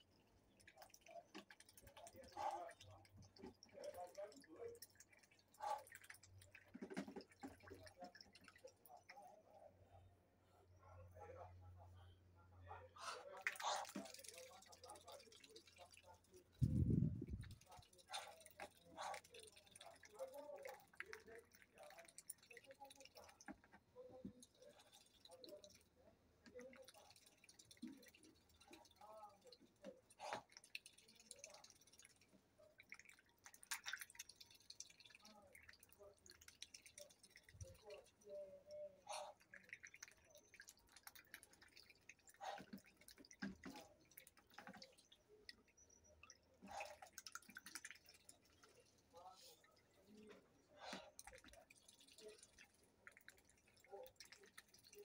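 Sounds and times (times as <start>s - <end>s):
duck dabbling bill in water: 0.0s - 9.4s, 12.8s - 55.0s
water splashes: 26.5s - 55.0s.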